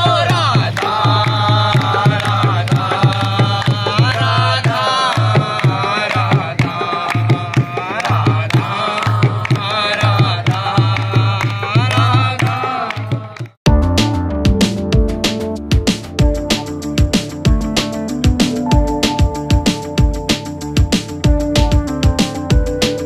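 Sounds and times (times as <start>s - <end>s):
group clapping along: 0.0s - 13.6s
hand-played barrel drum: 0.0s - 13.6s
man singing a devotional chant: 0.0s - 13.6s.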